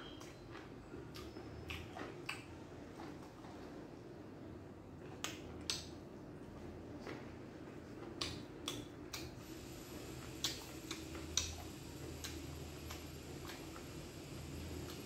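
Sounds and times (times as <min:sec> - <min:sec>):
person chewing food: 0:00.1 - 0:03.6, 0:10.2 - 0:13.8
mouth smacks and clicks: 0:01.1 - 0:02.5, 0:10.4 - 0:13.6.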